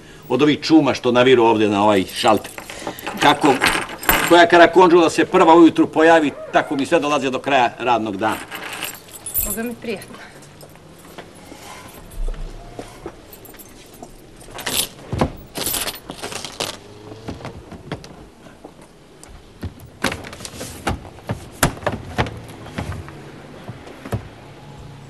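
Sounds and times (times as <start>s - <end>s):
rustling and knocking: 2.1s - 4.5s, 11.0s - 24.4s
window blind clicking and rattling: 2.1s - 4.7s, 16.0s - 16.9s.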